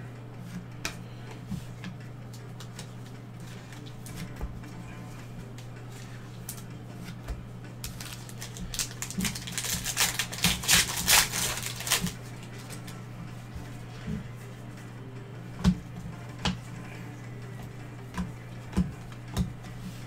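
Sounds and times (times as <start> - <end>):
steady low hum: 0.0 - 20.0
wrapper tearing and crinkling: 7.9 - 12.2.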